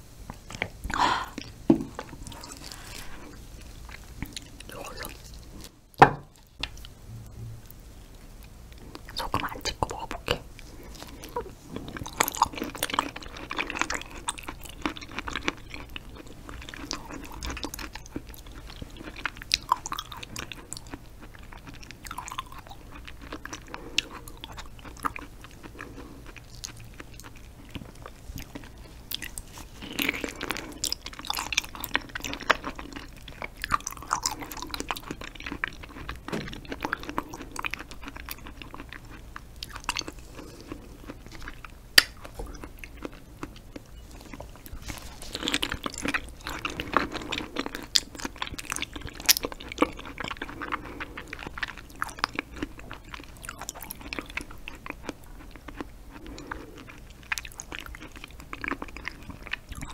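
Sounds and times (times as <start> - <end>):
chewing mouth clicks and smacks: 45.4 - 59.9.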